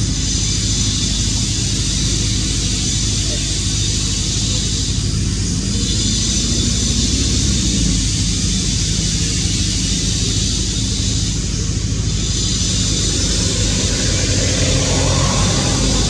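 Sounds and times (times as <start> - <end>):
low mechanical drone: 0.0 - 16.0
high hiss: 5.6 - 16.0.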